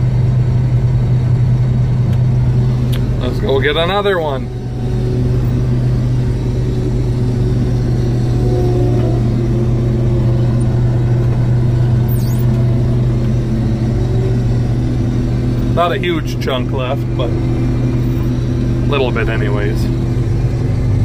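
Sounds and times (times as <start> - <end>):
combine harvester engine drone: 0.0 - 21.0.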